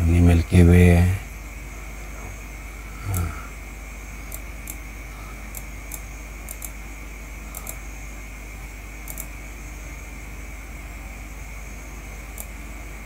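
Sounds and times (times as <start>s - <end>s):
electrical hum and hiss: 0.0s - 13.0s
computer mouse clicking: 4.3s - 4.8s, 5.5s - 6.8s, 7.5s - 7.8s, 9.0s - 9.3s, 12.3s - 12.6s.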